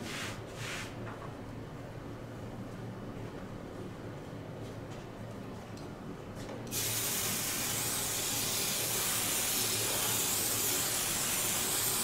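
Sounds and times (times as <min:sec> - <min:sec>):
aerosol spray hissing: 0:06.7 - 0:12.0.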